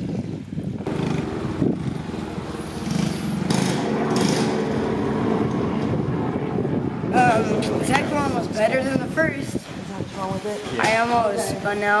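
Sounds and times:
go-kart engine running: 0.8 - 8.1.

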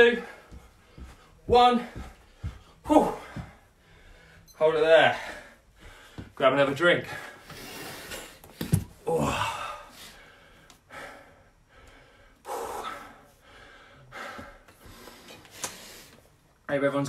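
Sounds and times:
man breathing hard and gasping: 0.0 - 4.5, 5.1 - 6.4, 7.0 - 16.3.

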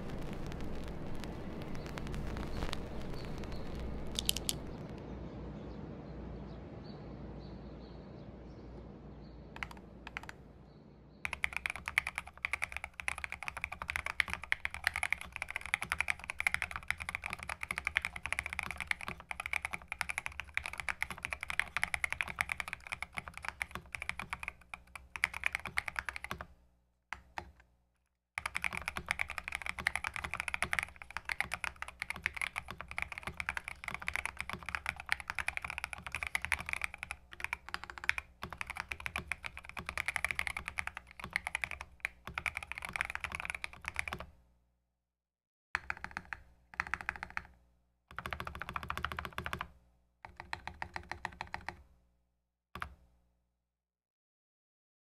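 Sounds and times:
fast mechanical keyboard typing: 0.0 - 4.8, 9.6 - 10.4, 11.3 - 26.5, 27.2 - 27.6, 28.4 - 44.3, 45.8 - 51.8, 52.8 - 53.0.

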